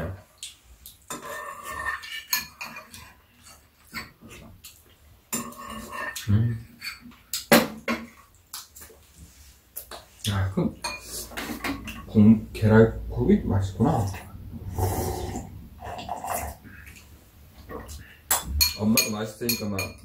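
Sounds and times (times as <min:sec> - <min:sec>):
spoons clinking against bowls: 0:01.1 - 0:04.1, 0:10.8 - 0:12.1, 0:18.3 - 0:20.0.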